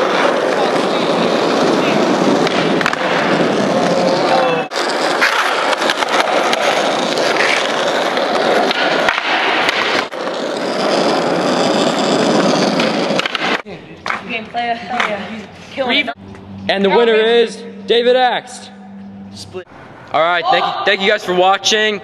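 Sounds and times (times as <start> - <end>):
skateboard clacking on ground: 0.0 - 15.3
skateboard wheels rolling on concrete: 0.0 - 16.2.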